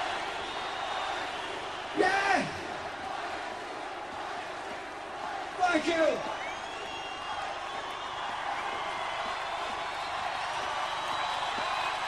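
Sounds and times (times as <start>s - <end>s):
whistles from crowd: 0.0s - 2.0s, 6.2s - 12.0s
large crowd cheering: 0.0s - 12.0s.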